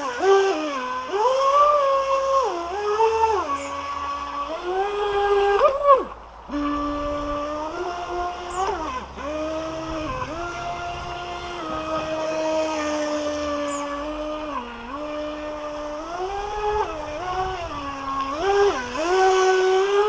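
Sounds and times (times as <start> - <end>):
electric motor whining: 0.0 - 20.0.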